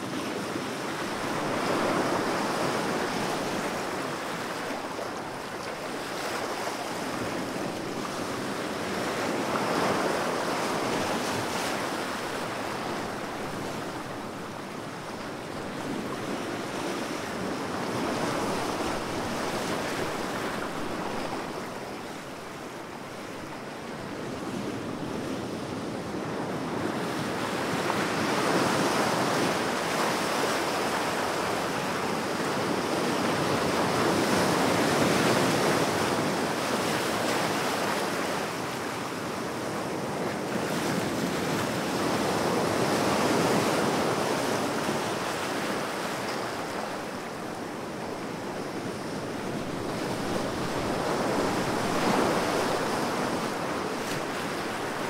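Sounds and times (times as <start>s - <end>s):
ocean waves breaking: 26.5s - 55.0s.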